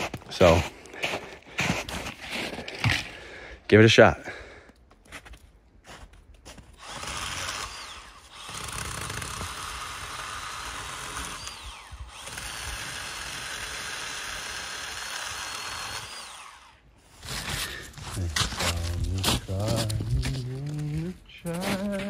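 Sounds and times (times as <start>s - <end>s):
power saw cutting branch: 6.8s - 21.0s.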